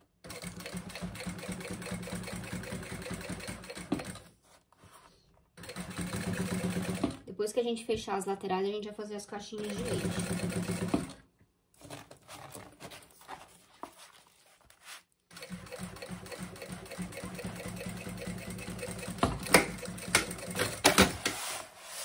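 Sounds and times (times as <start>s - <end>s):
sewing machine stitching: 0.2s - 4.3s, 5.6s - 7.2s, 9.6s - 11.2s, 15.3s - 21.2s
handling of material: 11.8s - 15.2s.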